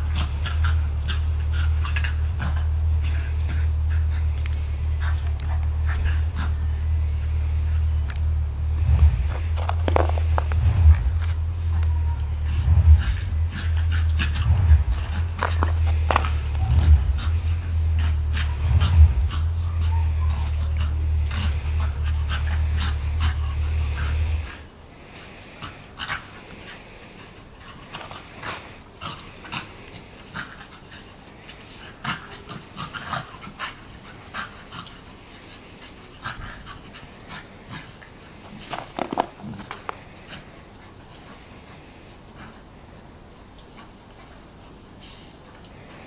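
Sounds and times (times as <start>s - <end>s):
loud low hum: 0.0s - 24.6s
dogs panting: 0.0s - 42.8s
dogs scuffling: 8.1s - 12.4s, 13.3s - 24.6s, 38.3s - 40.6s.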